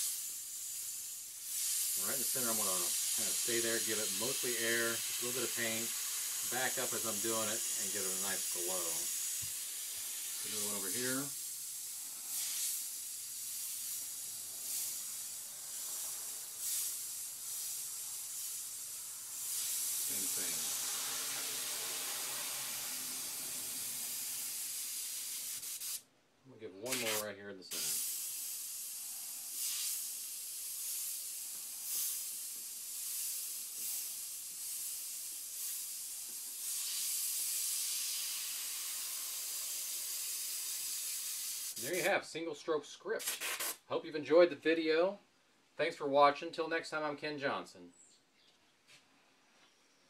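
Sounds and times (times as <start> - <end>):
airbrush hissing: 0.0 - 26.0, 26.9 - 42.1.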